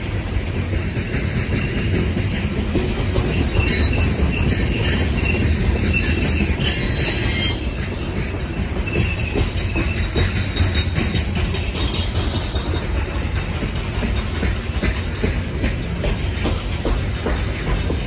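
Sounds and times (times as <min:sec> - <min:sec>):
train wheels rumbling on rail: 0:00.0 - 0:18.0
wheel squeal: 0:00.4 - 0:12.0.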